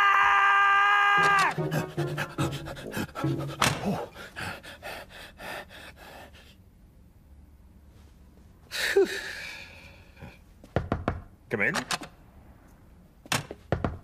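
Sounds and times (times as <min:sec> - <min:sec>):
cartoon character gasping: 0:01.4 - 0:04.5.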